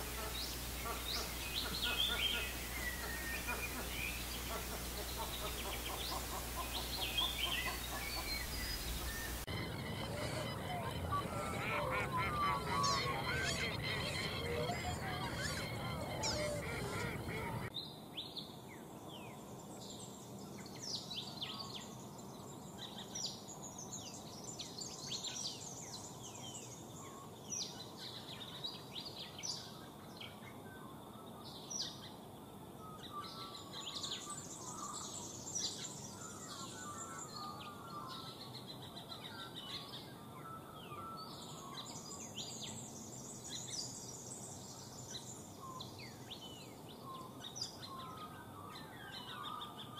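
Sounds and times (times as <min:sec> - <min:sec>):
birds chirping and calling: 0:00.0 - 0:17.7
steady background hiss: 0:00.0 - 0:49.9.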